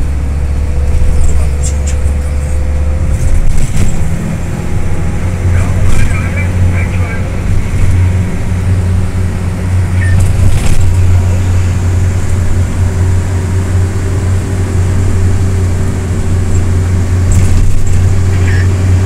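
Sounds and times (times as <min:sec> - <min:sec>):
engine and road noise drone: 0:00.0 - 0:19.0.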